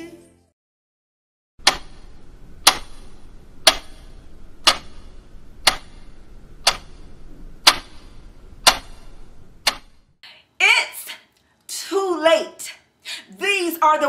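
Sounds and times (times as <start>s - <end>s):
clock ticking: 1.6s - 10.1s.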